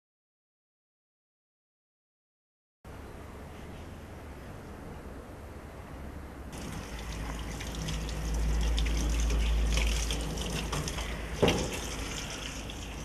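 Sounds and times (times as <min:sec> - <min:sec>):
water pouring into plastic bowl: 0:06.6 - 0:13.0.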